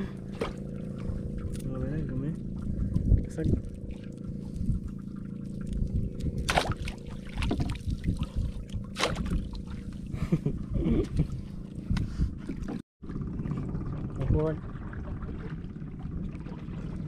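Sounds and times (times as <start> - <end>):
steady low rumble: 0.0 - 17.0
seawater splashing and dripping: 2.5 - 10.1
sharp splashes: 6.4 - 10.1.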